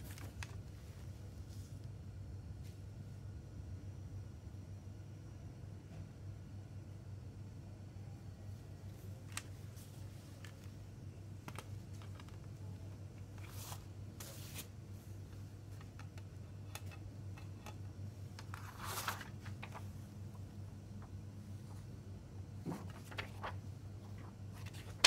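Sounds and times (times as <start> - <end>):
steady low hum: 0.0 - 25.0
card insert rustling: 18.4 - 19.9, 22.7 - 25.0.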